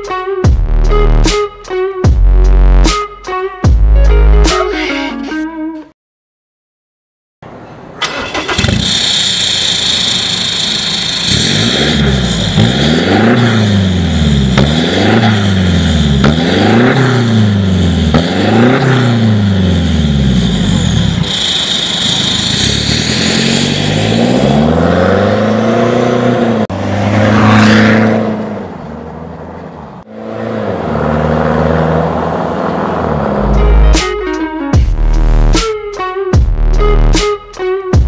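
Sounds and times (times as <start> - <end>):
truck engine revving: 8.0 - 28.7, 30.0 - 35.6.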